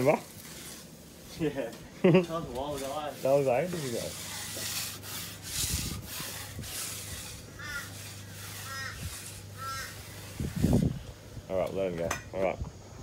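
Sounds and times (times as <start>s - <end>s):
trowel scraping concrete: 0.0s - 11.0s
bird calling: 7.5s - 10.4s.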